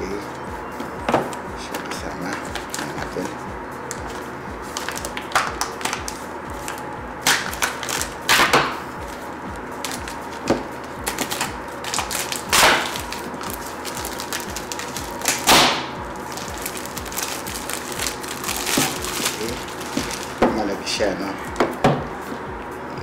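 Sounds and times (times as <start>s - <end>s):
plastic shrink wrap crinkling: 4.1s - 9.2s, 9.8s - 20.7s.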